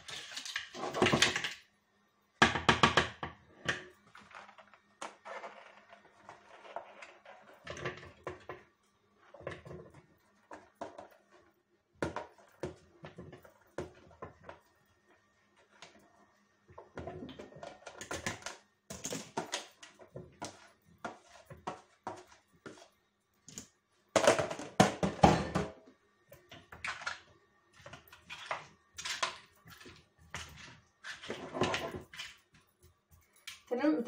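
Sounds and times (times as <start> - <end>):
plastic kitchenware clattering: 0.0 - 1.7, 16.8 - 22.9, 23.5 - 25.8, 26.4 - 32.7.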